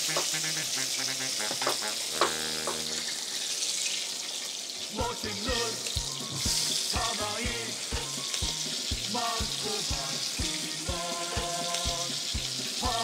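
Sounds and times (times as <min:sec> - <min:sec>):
meat sizzling in a pan: 0:00.0 - 0:13.0
background music with a beat: 0:05.0 - 0:13.0.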